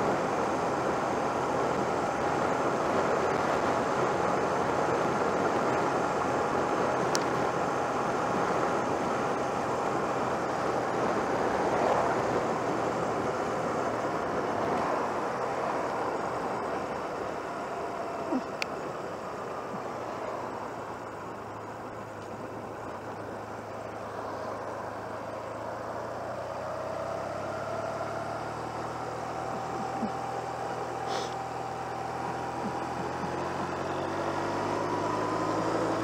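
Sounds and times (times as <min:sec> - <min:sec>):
motorcycle engine running: 0:00.0 - 0:36.0
wind and road noise: 0:00.0 - 0:36.0.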